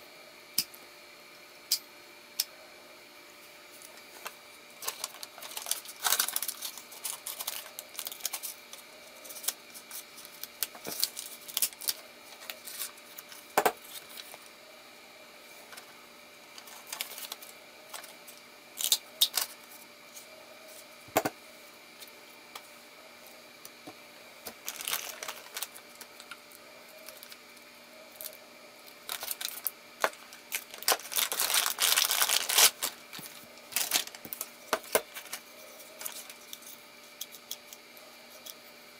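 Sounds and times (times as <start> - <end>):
paper and plastic bag rustling: 4.2 - 8.6, 16.6 - 18.1, 24.5 - 26.3, 29.1 - 35.4.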